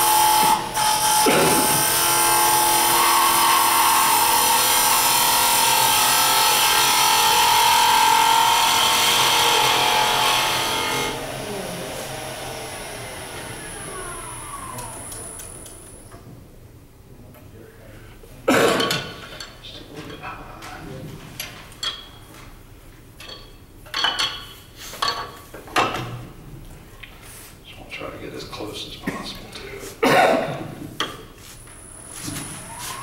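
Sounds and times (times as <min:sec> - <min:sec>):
lathe humming: 0:00.0 - 0:16.1.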